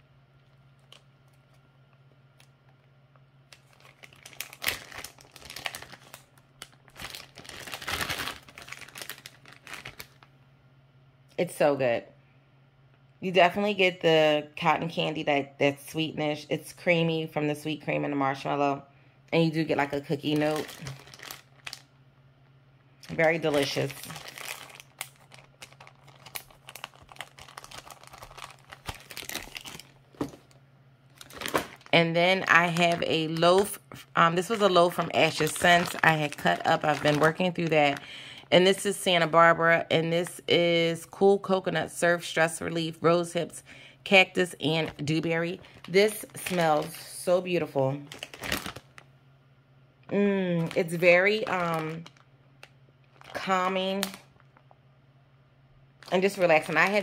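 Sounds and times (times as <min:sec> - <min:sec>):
faint steady hum: 0:00.0 - 0:57.0
plastic bag crinkling: 0:00.3 - 0:02.8, 0:03.4 - 0:10.3, 0:19.7 - 0:21.9, 0:23.0 - 0:39.0, 0:44.4 - 0:49.1, 0:50.6 - 0:54.8, 0:56.0 - 0:57.0.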